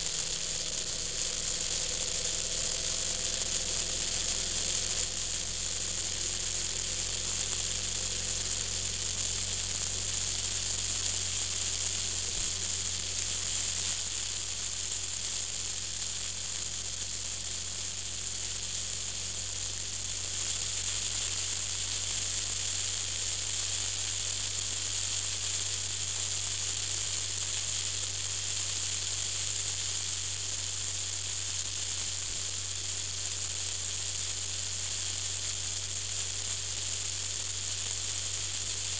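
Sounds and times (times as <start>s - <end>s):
low steady drone: 0.0s - 28.2s.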